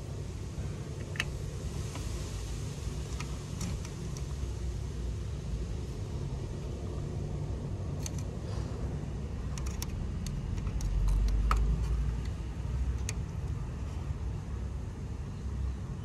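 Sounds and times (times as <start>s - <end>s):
steady low rumble: 0.0s - 16.0s
test probes clicking and tapping: 9.5s - 13.5s.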